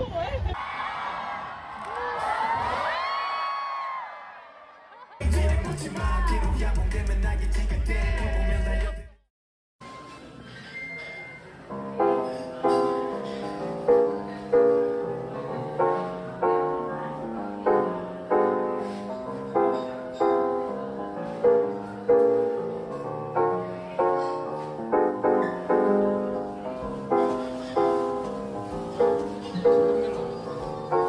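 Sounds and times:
gentle piano music: 0:11.6 - 0:31.0.

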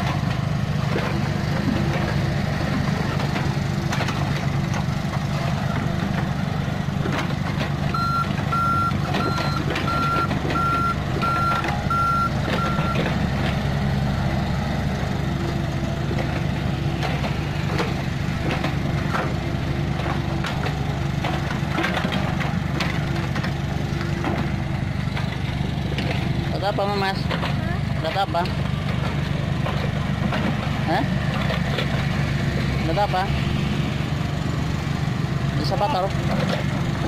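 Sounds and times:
bucket and tracks clanking: 0:00.0 - 0:33.9, 0:35.1 - 0:37.0
excavator diesel engine running: 0:00.0 - 0:37.0
backup alarm beeping: 0:07.9 - 0:13.1.

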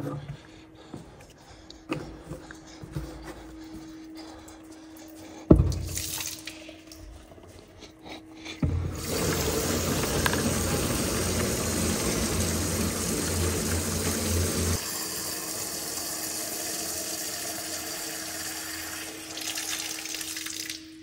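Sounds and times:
tap water filling a container: 0:08.9 - 0:20.9.

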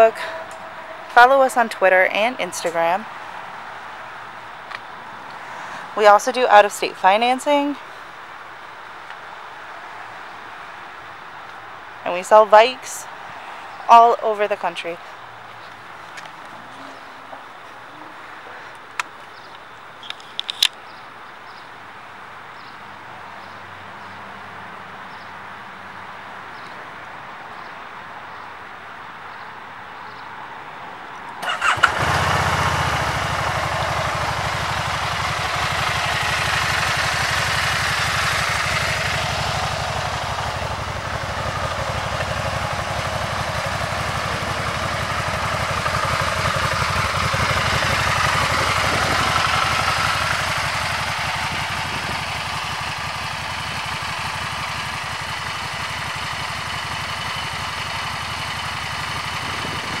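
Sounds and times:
engine starting and idling: 0:31.4 - 1:00.0.

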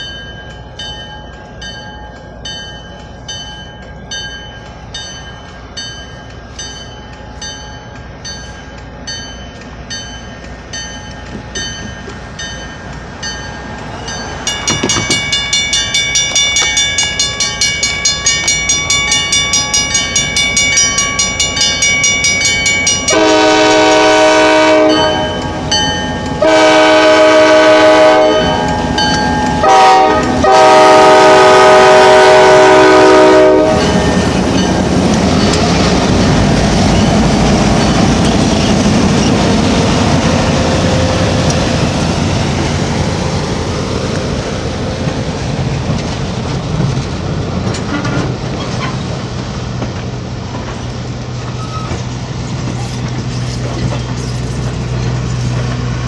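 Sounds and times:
railroad crossing bell dinging: 0:00.0 - 0:43.8
locomotive air horn blasts: 0:23.1 - 0:25.6, 0:26.4 - 0:28.7, 0:29.6 - 0:34.3.

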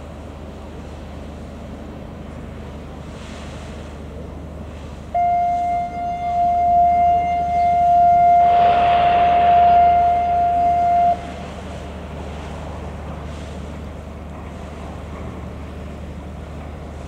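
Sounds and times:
wind and water noise: 0:00.0 - 0:17.0
ship's horn long note: 0:05.1 - 0:11.9
low hum: 0:05.1 - 0:16.0.

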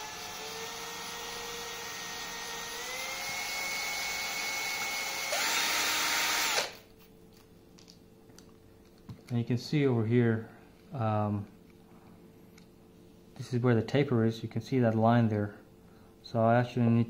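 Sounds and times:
cordless drill motor whine: 0:00.0 - 0:06.8.

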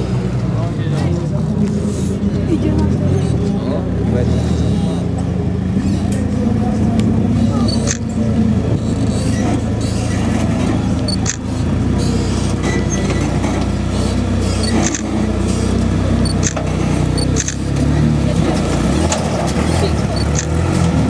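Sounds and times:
buggy engine running: 0:00.0 - 0:21.0
sharp clicks: 0:07.0 - 0:08.2, 0:11.0 - 0:11.5, 0:14.6 - 0:15.2, 0:16.3 - 0:17.9, 0:19.0 - 0:20.9.

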